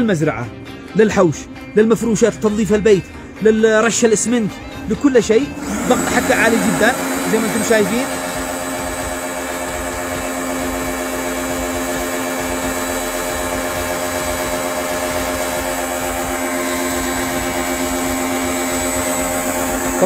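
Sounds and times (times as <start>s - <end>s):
pressure washer motor hum: 5.3s - 20.0s
high-pressure water jet hissing: 5.6s - 20.0s.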